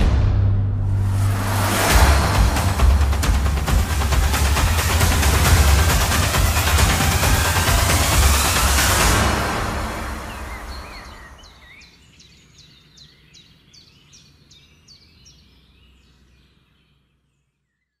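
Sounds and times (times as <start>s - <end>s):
loud sound: 0.0s - 11.3s
songbird singing: 9.9s - 18.0s.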